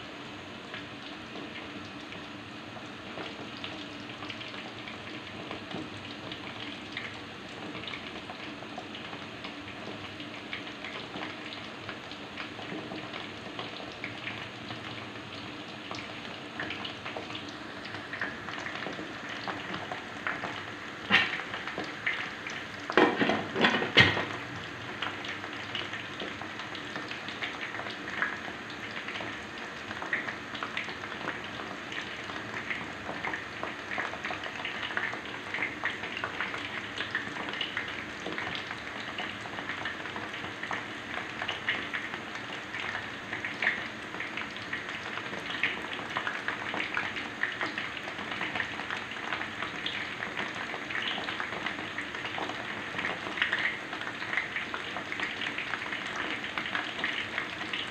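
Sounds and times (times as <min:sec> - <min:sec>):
food deep-frying in oil: 0:00.0 - 0:57.9
oil popping and crackling: 0:15.9 - 0:57.9.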